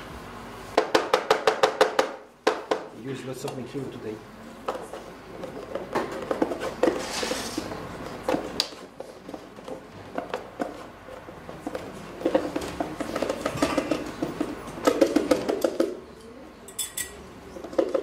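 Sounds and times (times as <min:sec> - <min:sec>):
containers and utensils clicking: 0:08.3 - 0:18.0.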